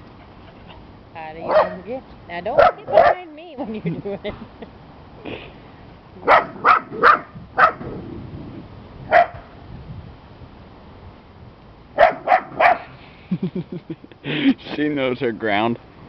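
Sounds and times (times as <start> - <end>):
small dog barking: 1.4 - 1.9, 2.6 - 3.2, 6.2 - 7.9, 9.1 - 9.5, 12.0 - 12.9.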